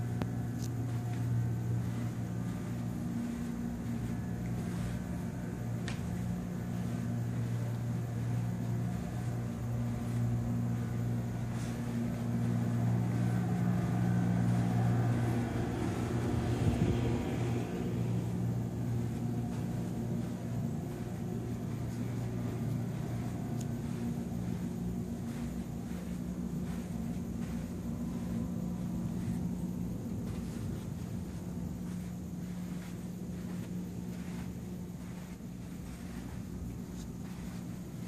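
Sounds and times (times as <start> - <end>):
low mechanical hum: 0.0 - 38.0.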